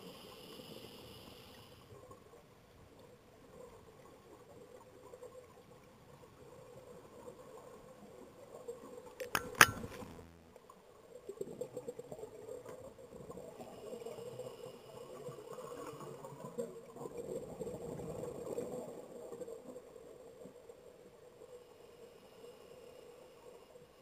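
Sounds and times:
sharp knocks underwater: 0:09.2 - 0:10.4.

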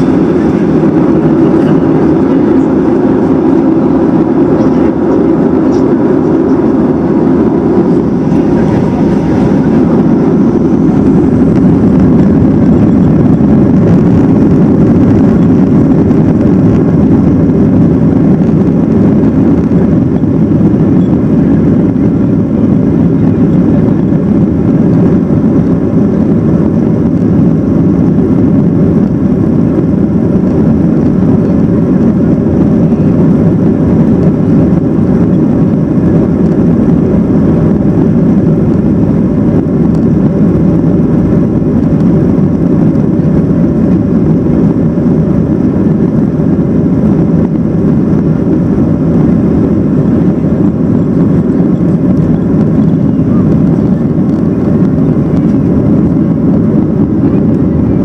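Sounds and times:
jet engine cabin rumble: 0:00.0 - 0:58.0.

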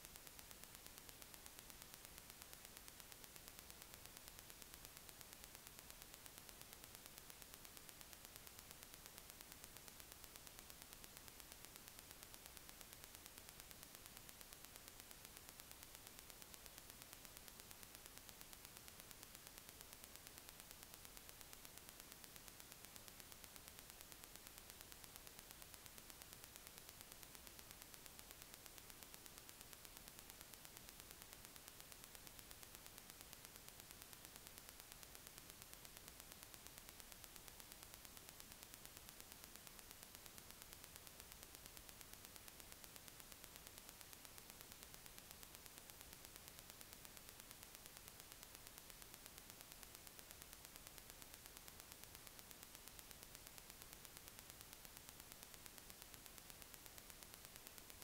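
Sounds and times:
faint recording hiss: 0:00.0 - 0:58.0.

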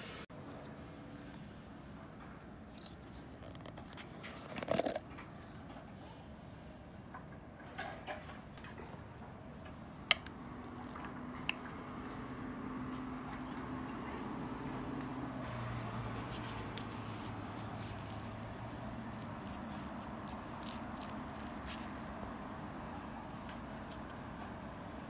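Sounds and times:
spoon squelching in sticky rice: 0:16.2 - 0:23.1.

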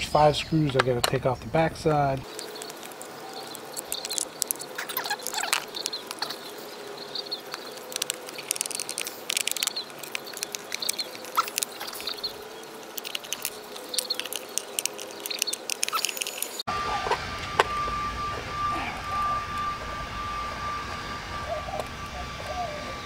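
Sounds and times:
screwdriver clicking on screws: 0:12.8 - 0:16.6.

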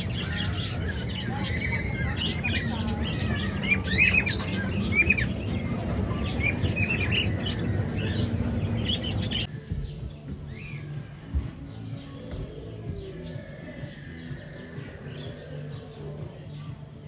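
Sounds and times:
parrots chirping and calling: 0:00.0 - 0:09.5
low background rumble: 0:01.2 - 0:09.5.

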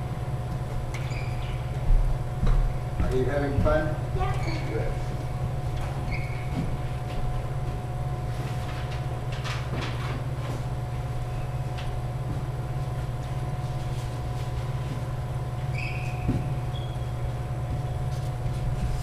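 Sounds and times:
low hum of sports hall: 0:00.0 - 0:08.2, 0:10.5 - 0:19.0
shoe squeaks on wooden floor: 0:01.0 - 0:01.7, 0:06.0 - 0:06.8, 0:15.7 - 0:18.1.

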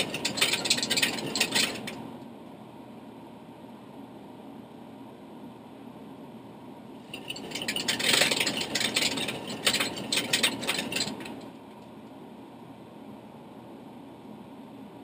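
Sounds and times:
mechanical ratcheting clatter: 0:00.0 - 0:02.0, 0:07.1 - 0:11.5.

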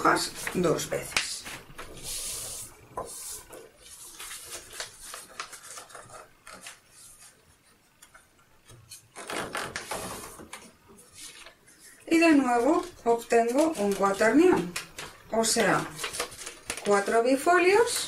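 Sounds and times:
paper rustling: 0:00.0 - 0:18.0.

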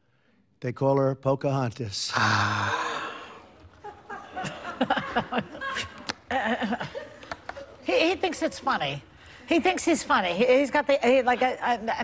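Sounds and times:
group of people laughing: 0:03.6 - 0:07.8.

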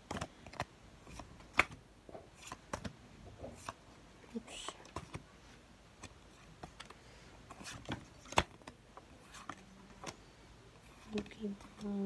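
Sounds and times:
trading cards being flipped: 0:00.0 - 0:01.8.

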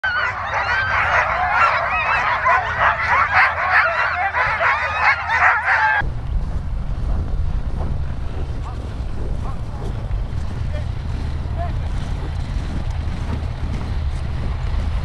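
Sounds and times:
dogs barking and yelping: 0:00.0 - 0:06.0, 0:08.4 - 0:14.4
wind rumble on microphone: 0:00.3 - 0:15.0.

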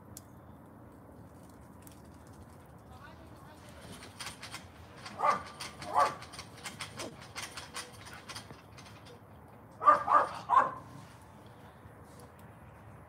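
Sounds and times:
dog barking: 0:05.2 - 0:06.2, 0:09.8 - 0:10.9.

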